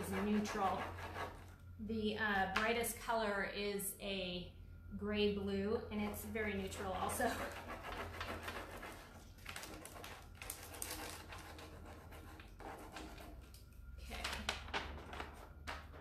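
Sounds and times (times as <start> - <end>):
dry scratching and papery rustling: 6.9 - 13.5.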